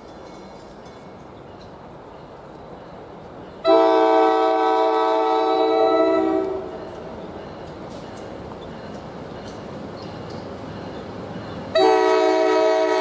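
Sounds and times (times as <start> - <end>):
train air horn blast: 3.6 - 6.7, 11.7 - 13.0.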